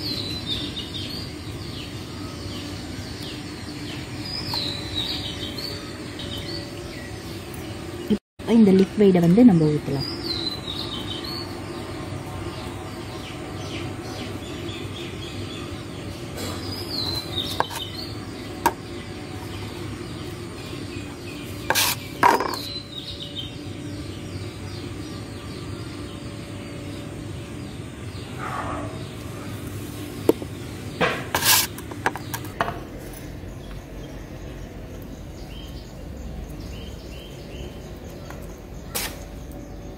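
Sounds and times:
birds chirping: 0.0 - 39.9
putty knife scraping paste: 17.2 - 17.9, 21.7 - 22.7, 31.4 - 32.4.

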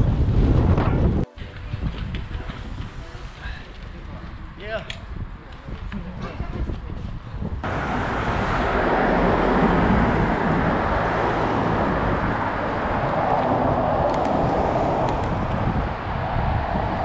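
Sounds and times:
wind rushing: 0.0 - 6.0, 6.6 - 17.0
bicycle road noise: 0.0 - 17.0.

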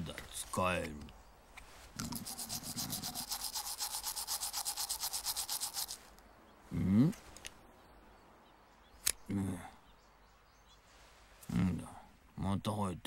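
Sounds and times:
toothbrush scrubbing teeth: 2.0 - 6.0.

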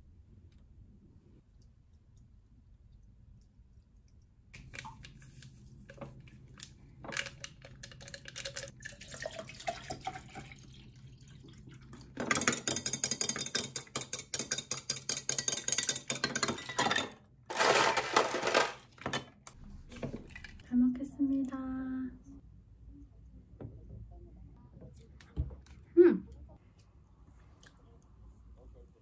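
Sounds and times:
water pouring into glass pitcher: 7.7 - 13.0.

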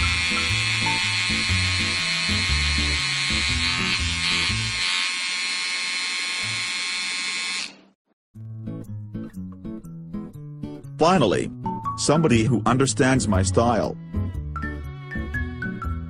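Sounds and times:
electric hair clippers buzzing: 0.0 - 8.0.

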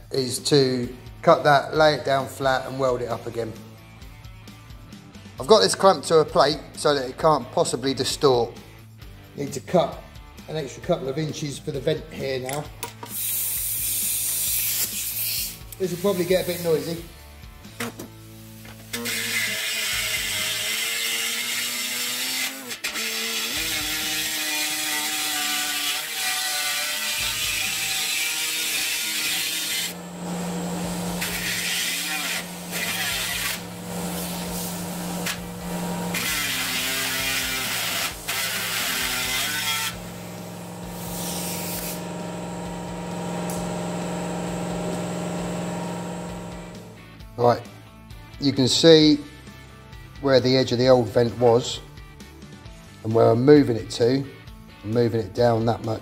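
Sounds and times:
air saw cutting sheet steel: 13.1 - 17.0, 18.5 - 47.0.

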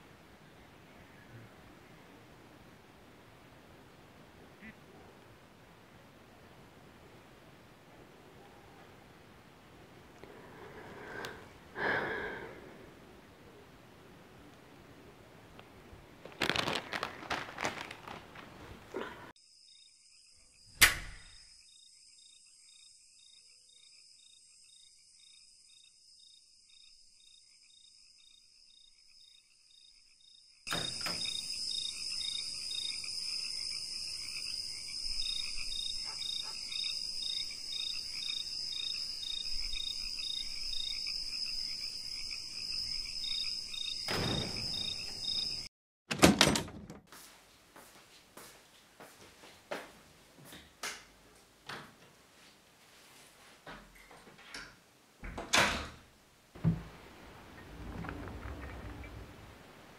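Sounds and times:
crickets chirping: 9.2 - 14.3, 16.2 - 45.7
loud thump: 44.1 - 44.9.

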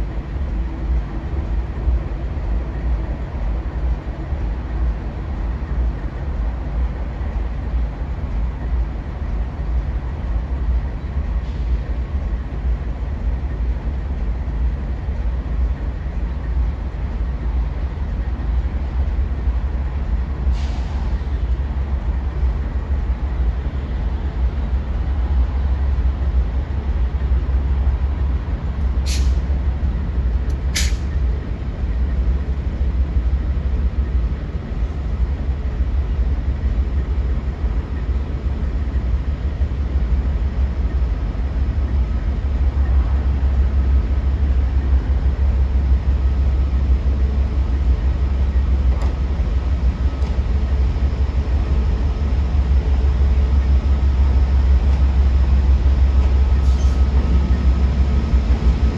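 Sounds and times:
diesel locomotive rumbling: 0.0 - 58.9.

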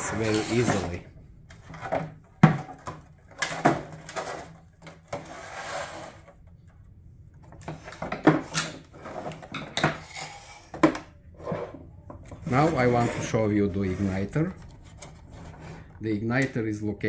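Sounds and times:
plastic scraping slide: 0.0 - 1.0, 5.1 - 6.3, 12.4 - 16.0.

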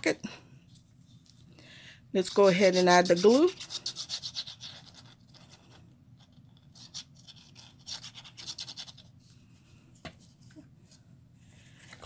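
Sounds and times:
glue nozzle scratching on card: 2.4 - 5.6, 6.2 - 9.1.

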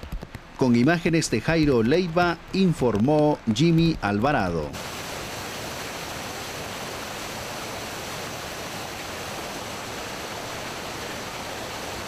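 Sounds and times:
stream rushing over rocks: 4.4 - 12.0.

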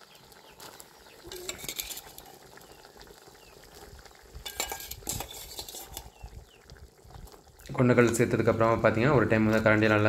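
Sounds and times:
metal spoon clinking against bowl: 4.5 - 6.0.

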